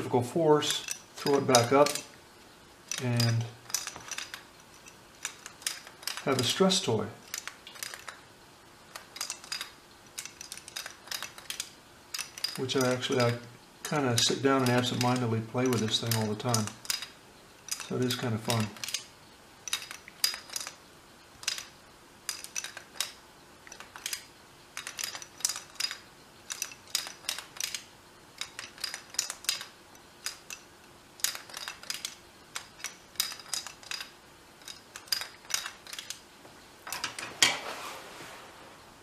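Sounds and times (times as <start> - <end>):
toy ladder clattering on table: 0.6 - 2.2, 2.9 - 8.2, 8.9 - 19.1, 19.7 - 20.8, 21.4 - 36.2, 36.8 - 37.7
toy block clicking down ladder: 8.9 - 19.1, 21.4 - 36.2.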